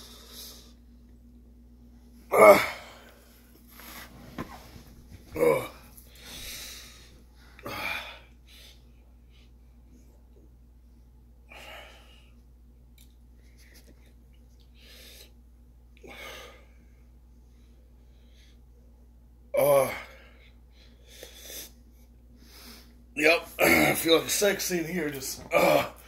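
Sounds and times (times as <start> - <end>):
man breathing hard and gasping: 5.7 - 8.9.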